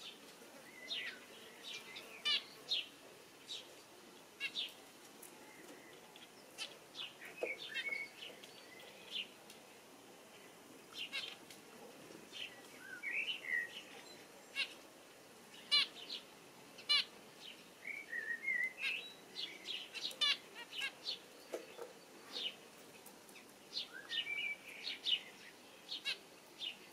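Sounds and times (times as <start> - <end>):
sparrow chirping: 0.9 - 2.9, 5.9 - 9.3, 15.5 - 22.6.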